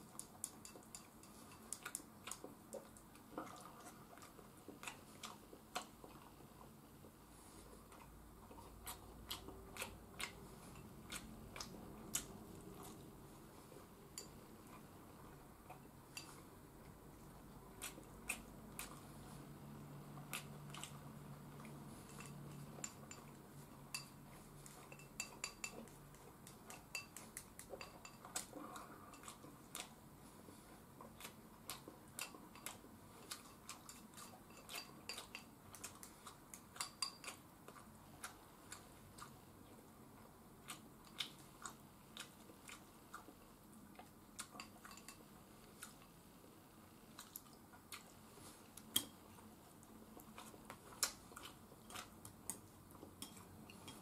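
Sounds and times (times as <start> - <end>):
chopsticks clicking on ceramic bowls: 24.9 - 28.5, 36.8 - 37.4, 48.9 - 49.2.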